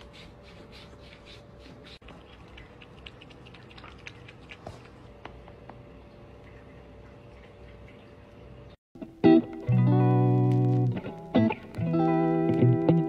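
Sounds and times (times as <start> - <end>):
cat lapping water: 0.8 - 8.7.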